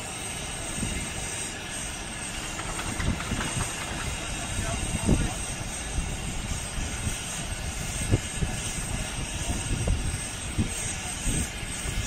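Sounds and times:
crane engine running: 0.0s - 12.0s
low thumps: 2.5s - 5.2s.

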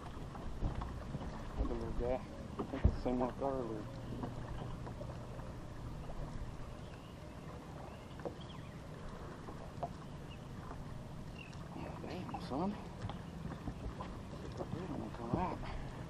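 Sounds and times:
lake water lapping: 0.0s - 16.0s.

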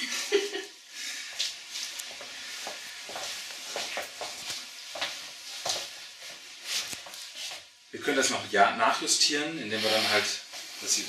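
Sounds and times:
rope rustling and scraping: 1.4s - 7.7s.

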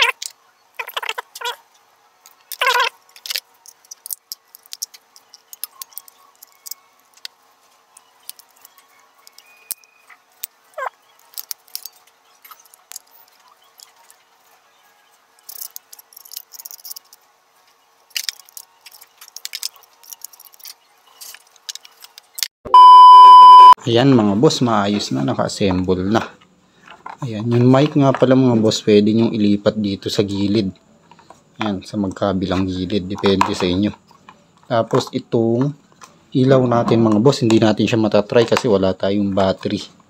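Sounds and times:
plastic parts clicking and tapping: 2.2s - 7.4s, 8.2s - 9.8s, 11.2s - 14.2s, 15.4s - 17.2s, 18.1s - 22.5s
loud electronic beep: 22.7s - 23.8s.

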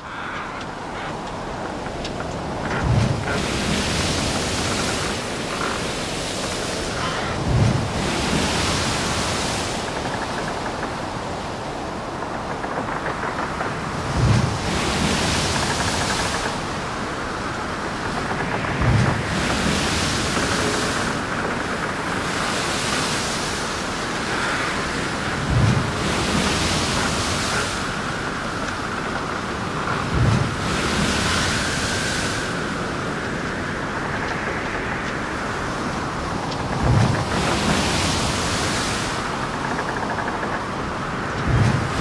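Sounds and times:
wind on microphone: 0.0s - 42.0s.

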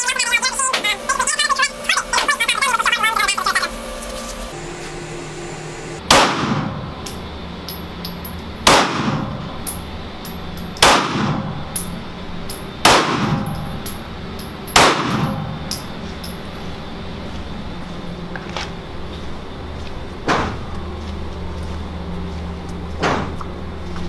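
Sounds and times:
pistol shots with reverberation: 6.1s - 6.7s, 8.6s - 9.3s, 10.8s - 11.5s, 12.8s - 13.5s, 14.8s - 15.4s.

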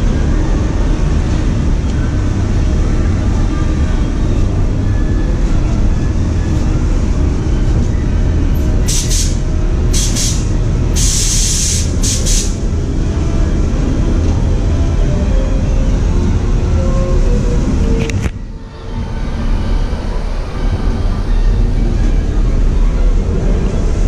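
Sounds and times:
low rumble: 0.0s - 24.0s
steam locomotive hissing steam: 8.8s - 12.6s.

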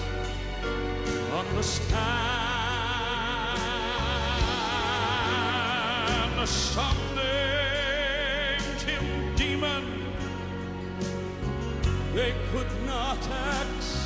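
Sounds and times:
instrumental accompaniment: 0.0s - 14.0s
man singing with vibrato: 1.2s - 10.5s, 12.0s - 14.0s.

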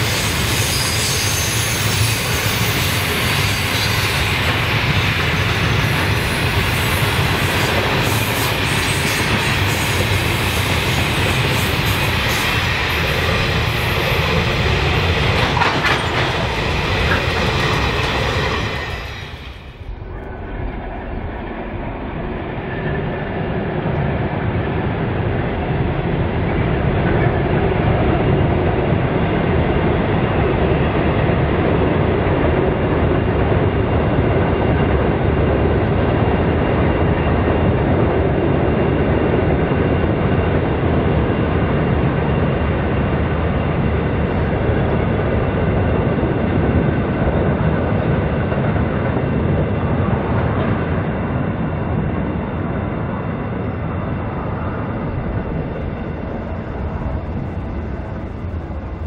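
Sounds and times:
diesel locomotive engines droning: 0.0s - 59.0s
freight wagons rolling on rails: 3.8s - 20.4s.

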